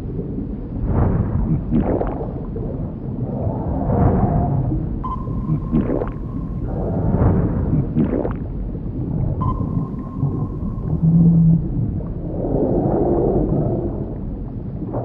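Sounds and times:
deep underwater rumble: 0.0 - 15.0
drawn-out moaning tones: 9.4 - 12.7.

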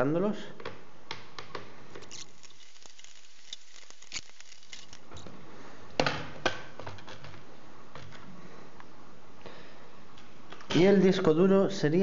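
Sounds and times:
screwdriver clicks and scrapes: 2.0 - 5.3.

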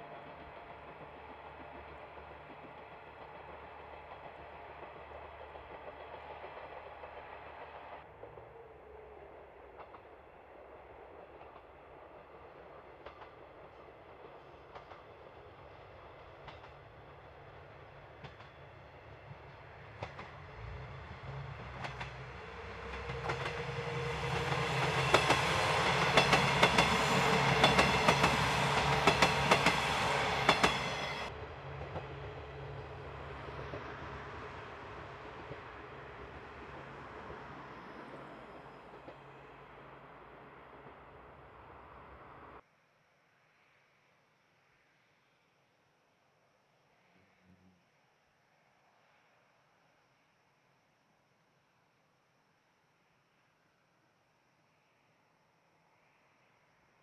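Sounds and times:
diesel train passing: 0.0 - 42.6
wheels clacking over rail joints: 21.6 - 32.2.

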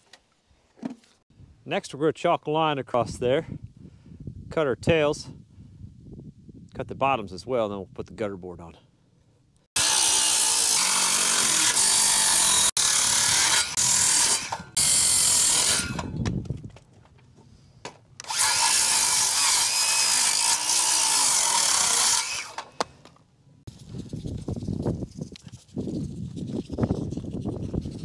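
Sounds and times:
circular saw cutting wood: 9.8 - 16.2, 18.2 - 22.8.

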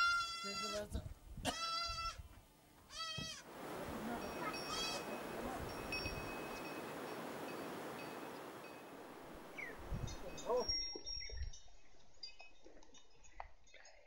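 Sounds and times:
livestock bleating: 0.0 - 2.2, 2.9 - 3.5, 4.5 - 5.3
background hiss: 2.7 - 10.7.

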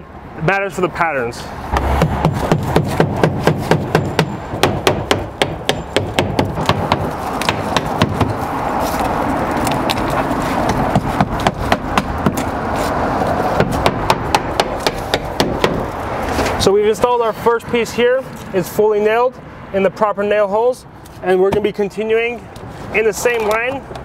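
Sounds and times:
hammer striking nails: 1.8 - 8.4, 10.9 - 12.5, 13.6 - 15.9.

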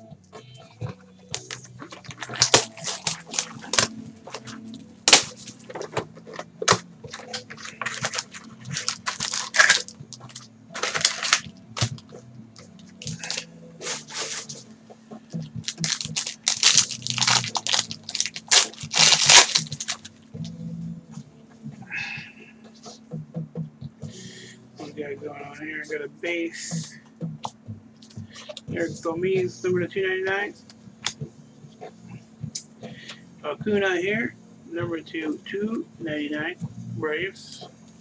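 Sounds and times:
foil wrapper crinkling and tearing: 1.3 - 5.9, 7.1 - 12.0, 13.0 - 14.4, 15.6 - 20.1.

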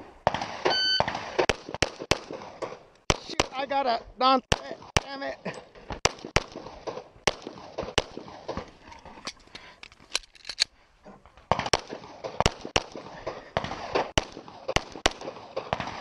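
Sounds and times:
pistol shots: 0.2 - 3.7, 5.9 - 8.7, 11.5 - 16.0.

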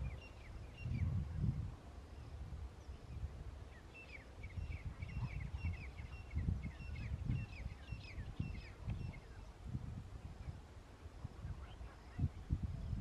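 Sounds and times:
low uneven rumble: 0.0 - 13.0
birds calling: 2.0 - 9.5.

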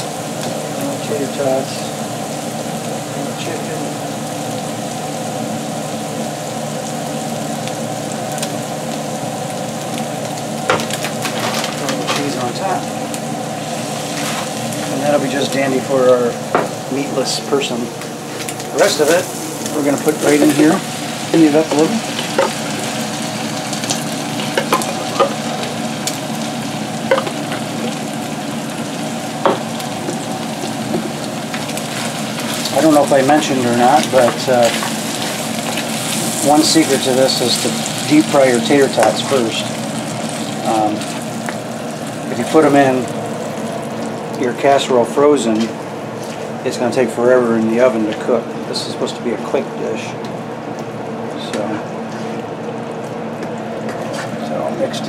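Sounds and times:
meat sizzling in a skillet: 0.0 - 46.6.

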